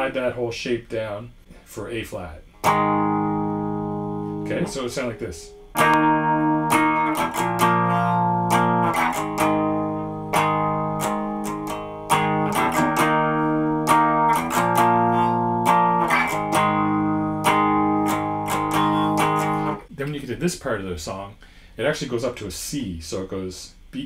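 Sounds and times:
electric guitar power chords: 2.6 - 19.8.

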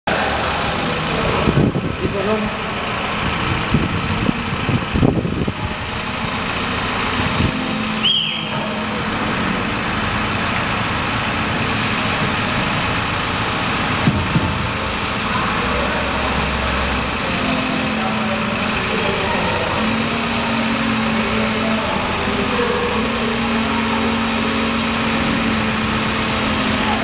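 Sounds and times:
crane engine running: 0.1 - 27.0
short falling squeal: 7.7 - 9.4.

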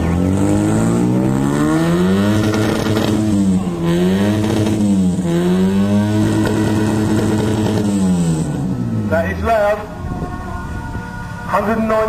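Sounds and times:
car engine revving through loud exhaust: 0.0 - 9.2.

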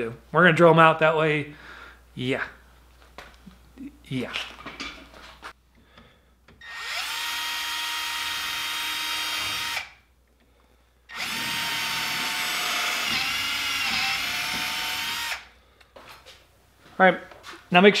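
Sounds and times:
cordless drill whining: 6.6 - 10.0, 11.1 - 15.5.

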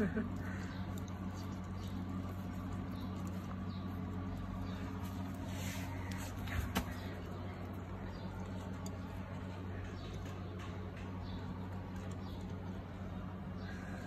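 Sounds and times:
steady low hum: 0.0 - 14.0
puppies licking food bowl: 0.3 - 5.5.

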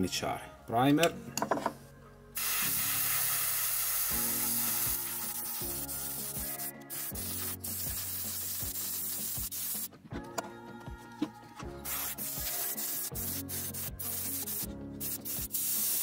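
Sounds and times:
airbrush spraying hiss: 2.4 - 9.9, 11.8 - 16.0.

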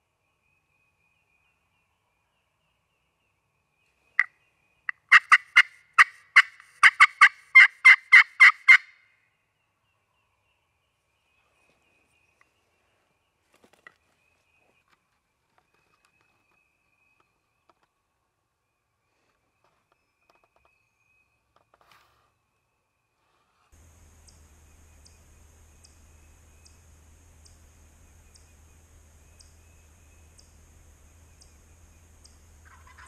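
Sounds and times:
turkey call yelps: 4.9 - 9.0, 24.2 - 33.0.

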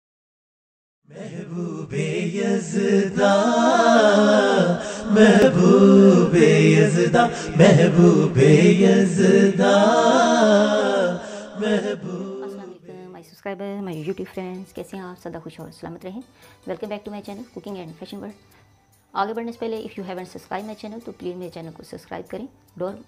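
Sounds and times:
voice chanting a wavering melody: 1.1 - 13.4.

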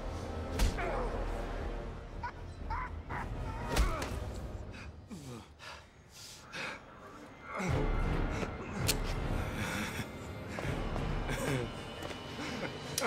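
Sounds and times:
man grunting and groaning: 6.8 - 9.1.

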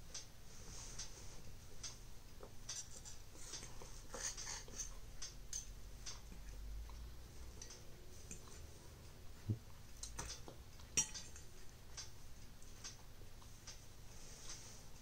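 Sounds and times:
cutlery clicking and scraping on plate: 2.7 - 6.2, 10.1 - 11.4.

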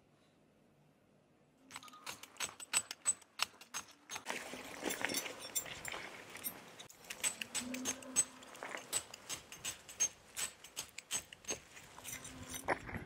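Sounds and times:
metal tent pegs clinking: 1.7 - 13.0
gravel scraping: 4.2 - 13.0.

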